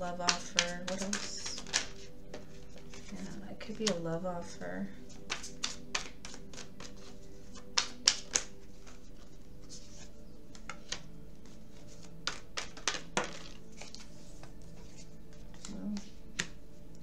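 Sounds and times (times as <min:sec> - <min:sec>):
cards tapping on table: 0:00.2 - 0:03.1, 0:05.1 - 0:09.0, 0:12.2 - 0:14.5, 0:15.6 - 0:16.6.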